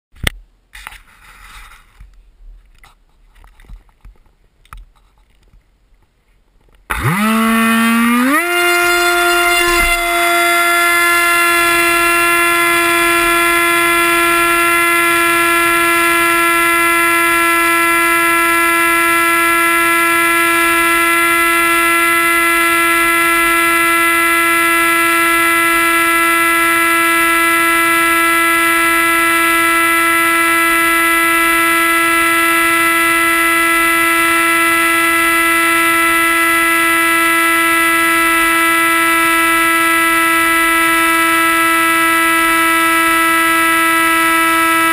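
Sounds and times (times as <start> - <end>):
model plane propeller whine: 6.9 - 44.9.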